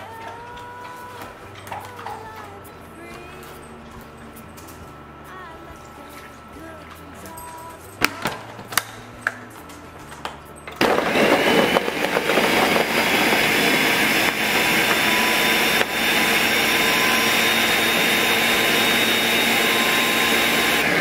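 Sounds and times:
blender running at high speed: 10.8 - 21.0.

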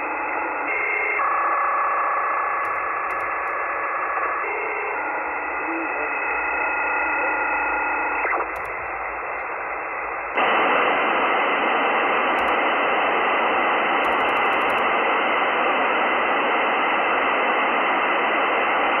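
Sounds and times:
faint clicks: 2.6 - 3.6, 8.4 - 9.5, 12.4 - 12.6
radio receiver hiss: 2.7 - 3.6, 8.0 - 19.0
radio data burst tones: 2.7 - 15.8.

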